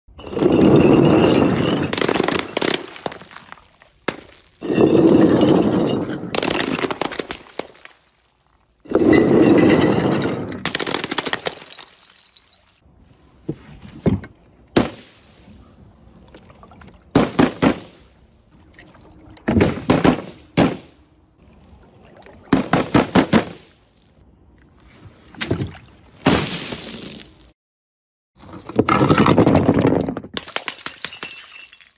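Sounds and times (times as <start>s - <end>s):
scattering glass rattle: 0.2s - 3.4s, 4.2s - 7.9s, 8.9s - 12.8s, 29.0s - 31.9s
glass bottles smashing on tiles: 0.2s - 8.0s, 8.9s - 12.8s, 28.9s - 31.9s.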